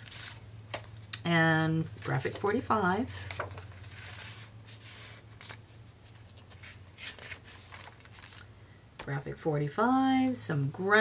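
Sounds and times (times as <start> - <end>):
paper pages rustling: 0.0 - 1.1, 3.2 - 8.4.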